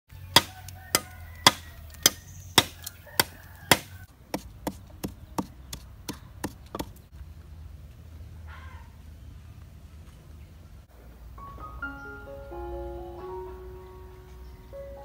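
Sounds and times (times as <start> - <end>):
machete chopping bamboo: 0.3 - 7.0
pestle pounding in mortar: 0.4 - 7.0.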